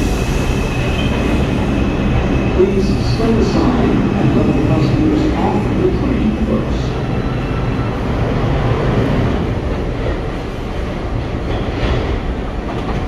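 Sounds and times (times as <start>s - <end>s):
station noise: 0.0s - 9.3s
subway train rumble and hum: 0.0s - 13.0s.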